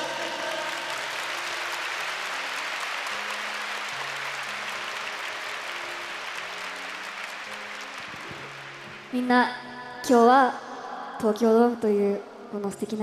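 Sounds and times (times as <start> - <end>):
crowd applauding: 0.0 - 9.2
soft background music: 0.0 - 13.0.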